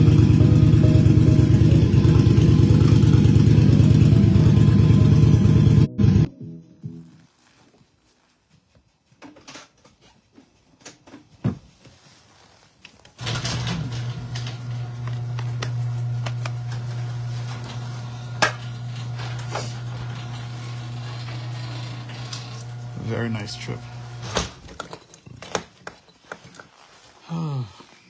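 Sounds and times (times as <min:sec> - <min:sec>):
low machine hum: 0:00.0 - 0:06.3, 0:13.2 - 0:24.4.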